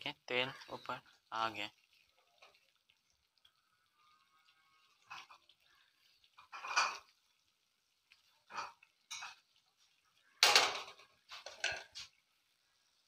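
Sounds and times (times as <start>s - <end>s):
spatula scraping a wok: 4.6s - 7.3s, 8.3s - 10.0s.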